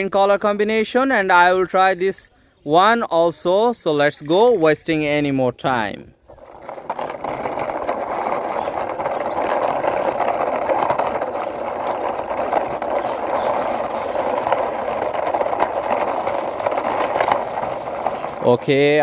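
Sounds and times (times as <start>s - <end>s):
toy truck wheels rolling on concrete: 3.7s - 19.0s.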